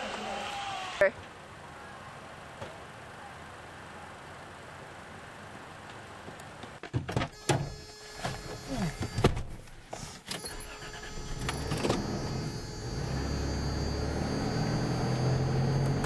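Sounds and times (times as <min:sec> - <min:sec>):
car engine starting: 0:10.0 - 0:16.0.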